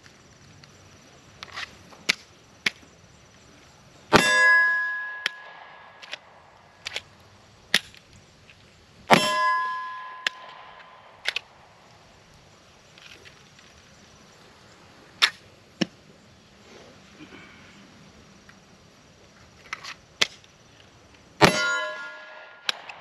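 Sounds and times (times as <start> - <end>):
metal target ringing clang: 4.1 - 6.2, 9.1 - 11.5, 21.4 - 23.0
pistol handling clicks: 5.2 - 7.1, 10.2 - 11.6, 22.6 - 23.0.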